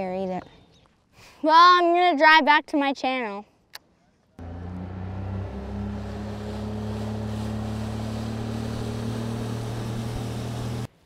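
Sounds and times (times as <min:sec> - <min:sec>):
outboard motor drone: 0:04.4 - 0:10.9
rushing water and wind: 0:04.8 - 0:10.9.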